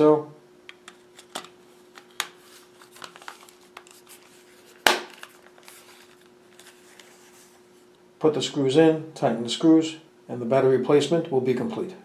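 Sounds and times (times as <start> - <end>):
plastic cover snapping into place: 4.8 - 5.5.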